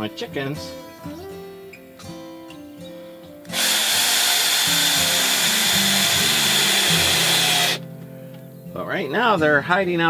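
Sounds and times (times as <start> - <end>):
background music: 0.0 - 10.0
power tool whining: 3.5 - 7.8.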